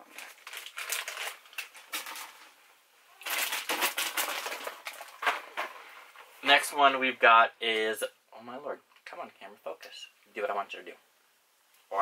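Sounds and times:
candy wrappers crinkling: 0.0s - 2.6s, 3.2s - 5.4s.

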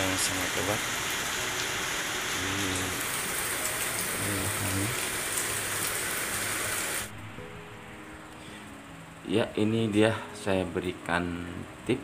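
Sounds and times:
heavy rain pouring: 0.0s - 7.3s.

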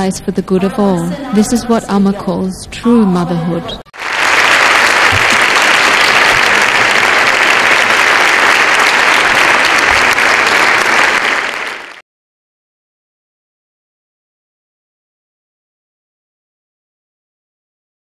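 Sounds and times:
large audience applauding: 3.9s - 12.0s.

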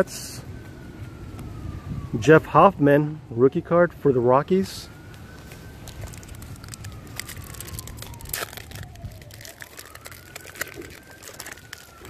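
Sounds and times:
distant siren wailing: 0.0s - 12.0s
wrapper crinkling and tearing: 5.5s - 12.0s.

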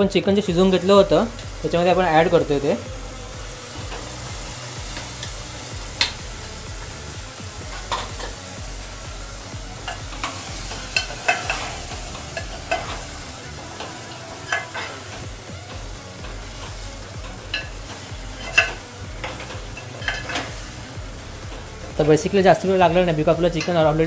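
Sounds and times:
food sizzling in oil: 0.0s - 24.0s
metal spoon clinking against pot: 11.0s - 11.6s.

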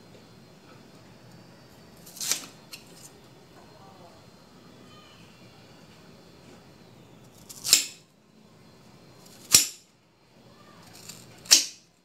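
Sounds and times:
knife chopping root: 11.4s - 11.8s.

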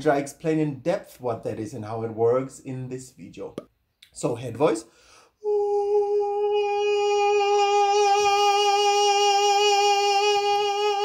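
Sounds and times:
man singing a long note: 5.4s - 11.0s.

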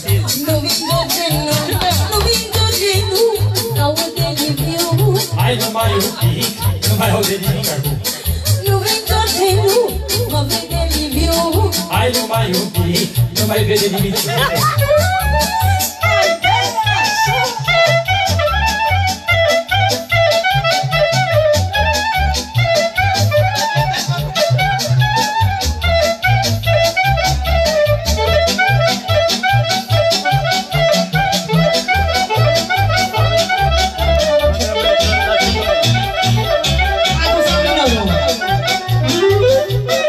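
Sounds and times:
backing beat and pulsing bass: 0.0s - 40.0s
clarinet melody: 13.8s - 40.0s.

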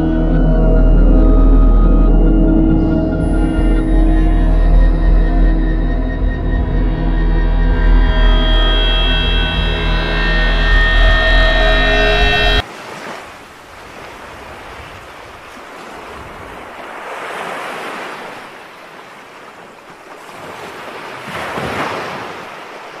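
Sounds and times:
music: 0.0s - 12.6s
sea waves rushing: 3.2s - 23.0s.

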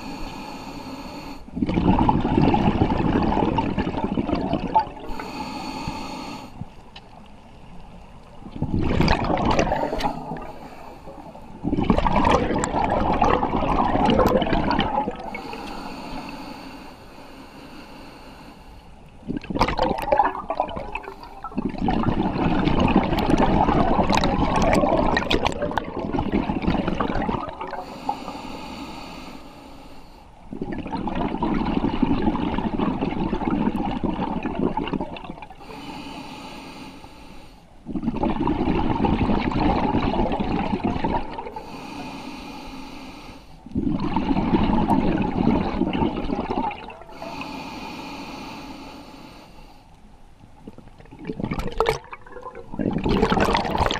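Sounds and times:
regulator inhalation hissing: 0.0s - 1.5s, 5.1s - 6.6s, 35.6s - 37.7s, 41.6s - 43.6s
exhaled bubbles rushing: 1.5s - 5.2s, 8.4s - 15.6s, 19.2s - 27.9s, 30.5s - 35.6s, 37.9s - 41.6s, 43.8s - 47.2s, 50.6s - 53.9s.

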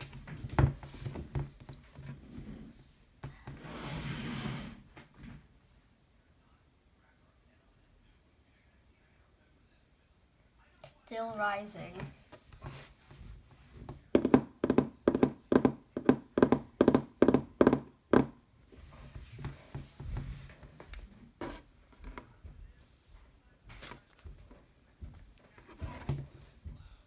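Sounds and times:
soft handling sounds: 10.8s - 14.1s, 18.6s - 27.0s
hand tapping dull thuds: 13.8s - 18.4s.

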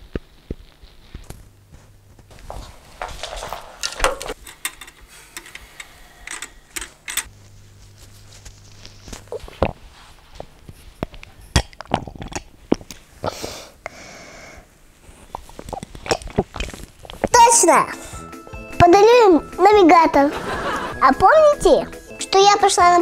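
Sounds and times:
footsteps on wooden floor: 1.7s - 4.4s.

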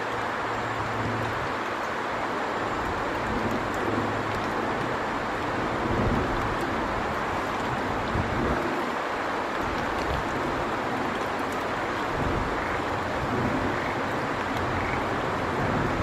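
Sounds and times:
steady rushing outdoor noise: 0.0s - 16.0s.

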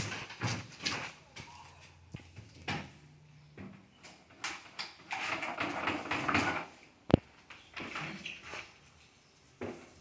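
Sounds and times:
paint roller rolling: 4.6s - 6.8s.

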